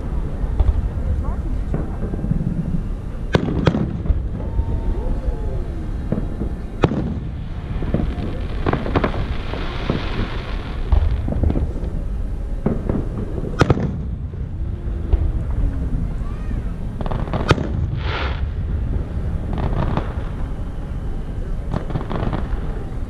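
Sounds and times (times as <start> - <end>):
fireworks bursting: 0.0 - 23.0
low rumble: 0.0 - 23.0
hiss: 16.3 - 18.5.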